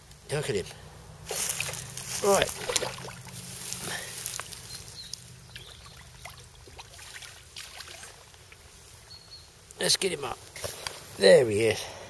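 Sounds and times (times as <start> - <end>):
fish splashing in water: 1.3 - 1.9, 2.5 - 4.0, 5.6 - 8.4.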